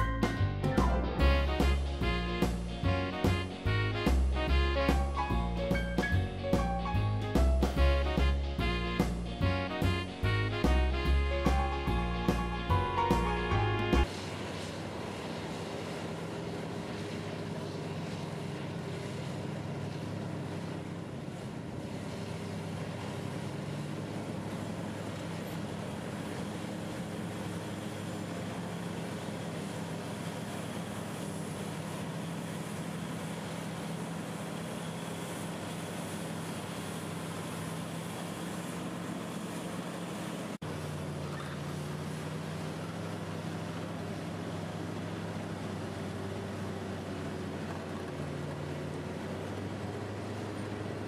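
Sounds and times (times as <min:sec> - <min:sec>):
bulldozer diesel engine drone: 0:00.0 - 0:51.0.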